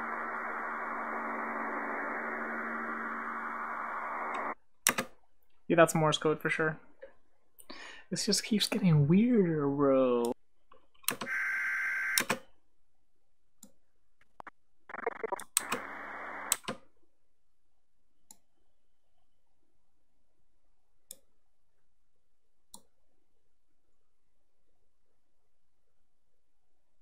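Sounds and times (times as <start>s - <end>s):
muffled static-filled recording: 0.0s - 4.6s, 14.2s - 16.7s
sharp clicks: 4.3s - 5.1s.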